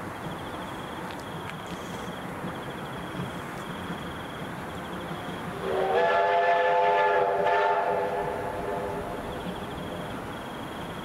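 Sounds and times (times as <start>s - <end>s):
train chord horn blast: 5.6s - 9.0s.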